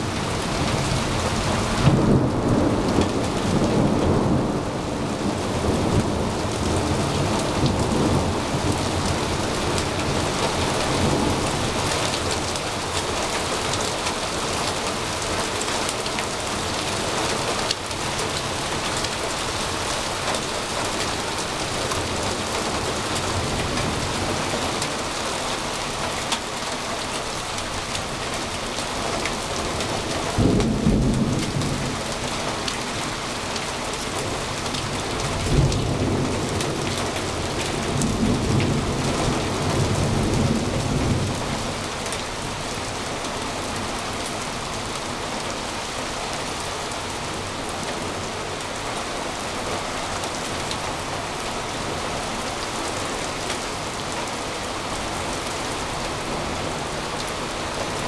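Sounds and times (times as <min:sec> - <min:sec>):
thunder rumbles: 0:00.0 - 0:14.5, 0:29.3 - 0:43.0
heavy rain pouring: 0:00.0 - 0:58.0.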